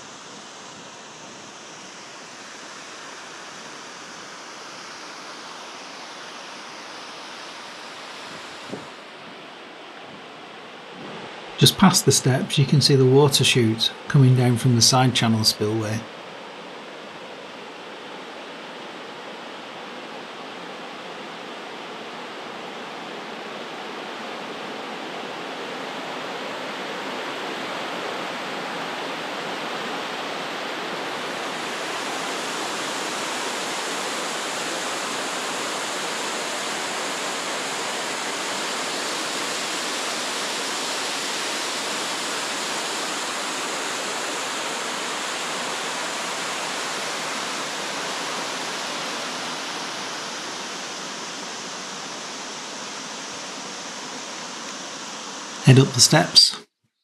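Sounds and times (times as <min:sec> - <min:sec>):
water cascading down spillway: 0:30.4 - 0:55.5.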